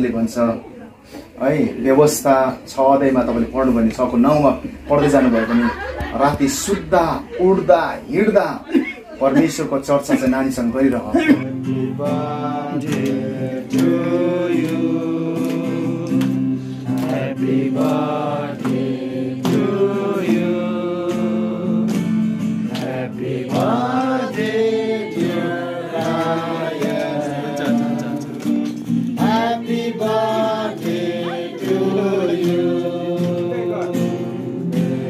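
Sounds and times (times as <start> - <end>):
group singing gospel song: 3.0 - 8.2, 11.4 - 35.0
instrumental accompaniment: 11.3 - 35.0.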